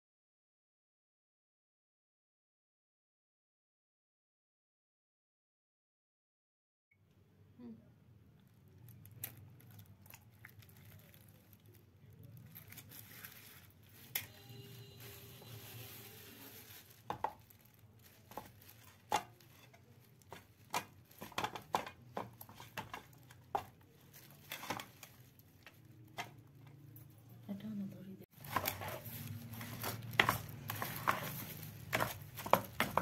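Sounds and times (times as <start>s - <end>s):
spoon stirring thick batter: 12.6s - 27.4s, 28.3s - 33.0s.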